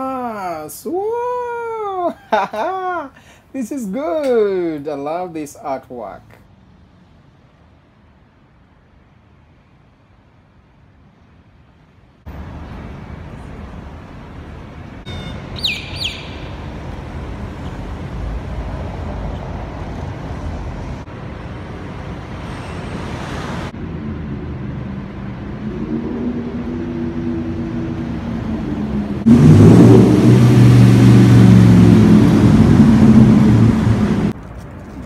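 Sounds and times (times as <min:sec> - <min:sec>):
street traffic hum: 0:00.0 - 0:35.0
high bird chirps: 0:15.1 - 0:16.7
vehicle engine running close by: 0:23.8 - 0:35.0.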